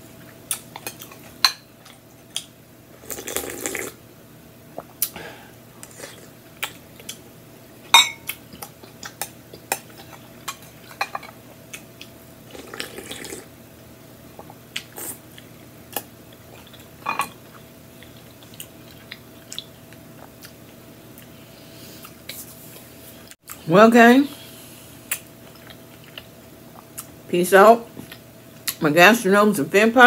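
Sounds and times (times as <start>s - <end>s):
slurping and swallowing: 3.0s - 4.0s, 12.5s - 13.5s
spoon clinking against glass bowl: 8.0s - 8.3s.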